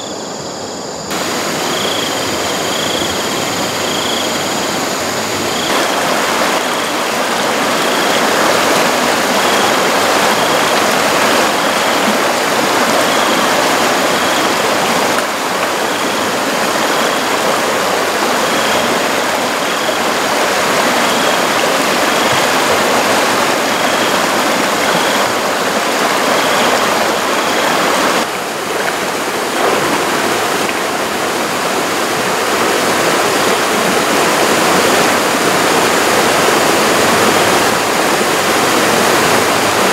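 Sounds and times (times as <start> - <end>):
river rushing over rocks: 1.1 - 39.9.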